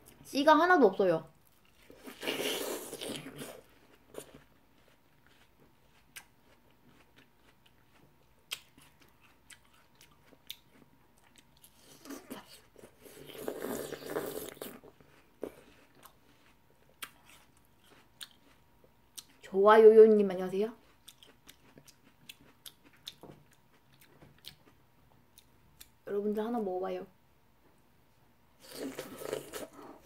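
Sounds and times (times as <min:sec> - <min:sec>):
juicy biting and chewing: 0:01.5 - 0:19.4, 0:20.9 - 0:25.9.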